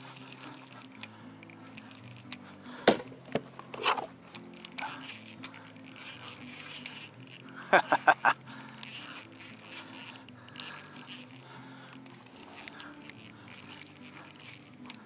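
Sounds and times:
soft background music: 0.0 - 15.0
faint crunching and clicking: 3.4 - 15.0.

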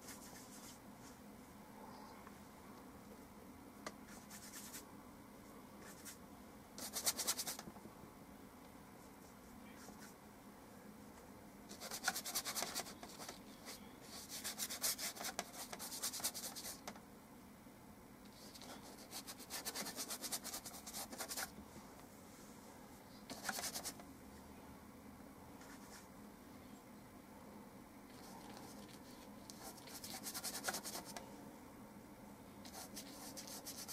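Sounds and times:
paintbrush scrubbing on paper: 0.0 - 1.2, 4.1 - 4.8, 6.8 - 7.6, 11.7 - 16.8, 18.4 - 21.5, 23.3 - 24.0, 28.1 - 31.2, 32.7 - 33.9.

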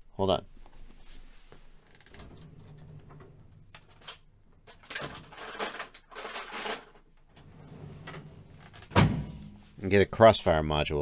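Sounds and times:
small tools clattering in drawer: 3.2 - 8.9.

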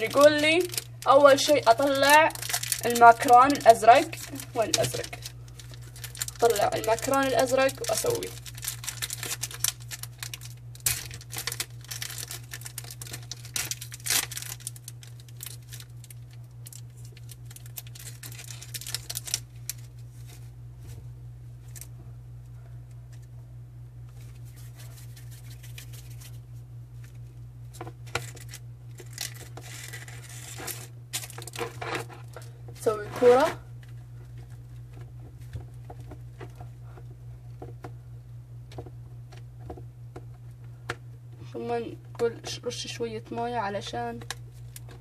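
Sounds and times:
plastic packet crinkling and tearing: 0.0 - 20.4, 24.2 - 26.4, 28.0 - 35.0.

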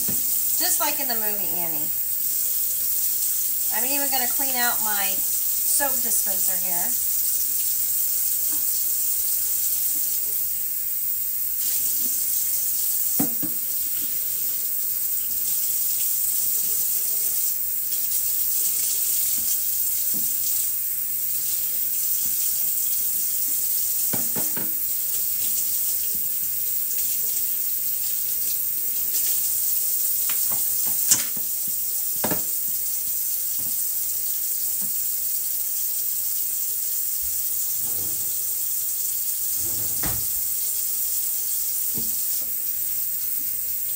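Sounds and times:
tap running into sink: 0.0 - 0.4, 13.1 - 14.2, 19.3 - 20.4, 24.0 - 24.8, 30.2 - 32.6, 37.7 - 38.6, 39.4 - 40.6, 41.9 - 42.5
knocks against sink: 13.2 - 13.6, 24.1 - 24.8, 32.2 - 32.5, 39.6 - 40.4.

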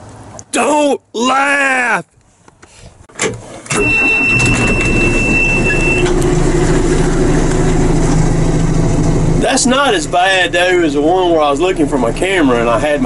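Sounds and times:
diesel engine starting and running: 3.0 - 13.0
steady high beep: 3.8 - 6.2.

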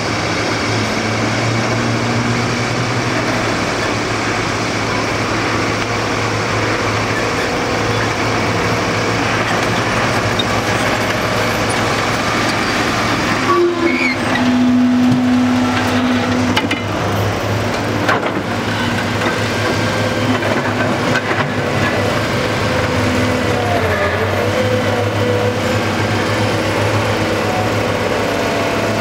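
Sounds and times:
diesel engines running: 0.0 - 29.0
steady horn tone: 13.3 - 16.8.

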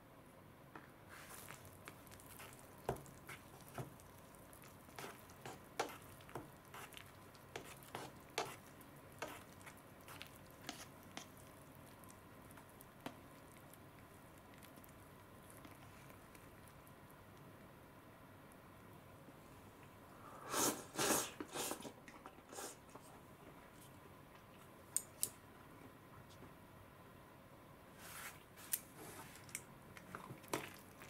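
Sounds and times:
wet noodle squishes: 1.1 - 17.5, 28.6 - 31.0.

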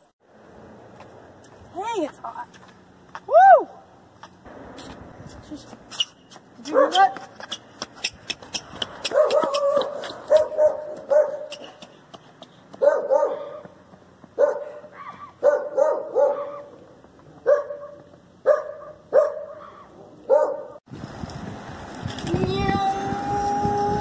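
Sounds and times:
dog barking: 6.7 - 7.1, 9.1 - 11.6, 12.8 - 13.7, 14.4 - 16.8, 17.4 - 20.8.

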